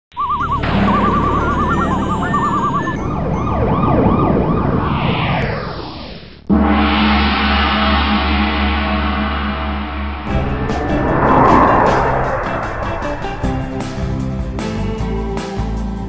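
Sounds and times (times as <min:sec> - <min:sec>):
warbling electronic tone: 0:00.1 - 0:14.4
downward sweeping whoosh: 0:00.6 - 0:15.1
gong-like chord with deep hum: 0:06.5 - 0:14.9.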